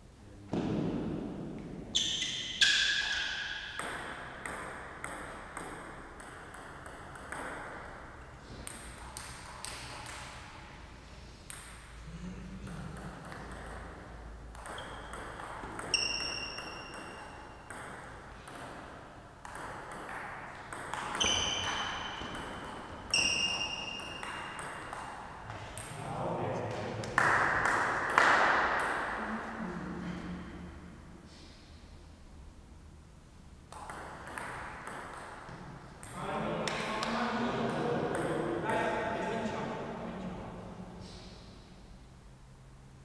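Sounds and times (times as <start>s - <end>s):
table tennis ball hitting bats and table: 0.5s - 10.8s, 11.4s - 12.0s, 12.6s - 26.1s, 26.7s - 29.2s, 33.6s - 39.2s.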